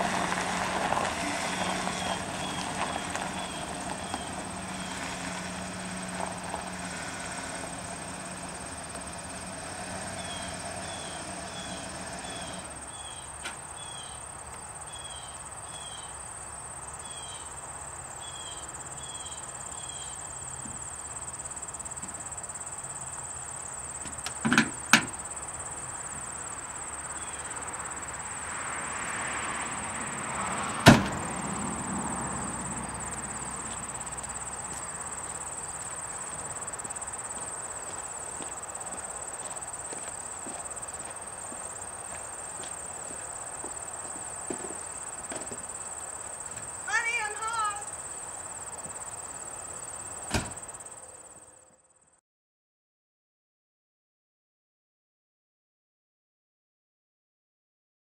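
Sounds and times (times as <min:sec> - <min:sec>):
truck engine idling: 0:00.0 - 0:15.6, 0:29.7 - 0:50.9
door latch clunks: 0:50.3 - 0:50.6.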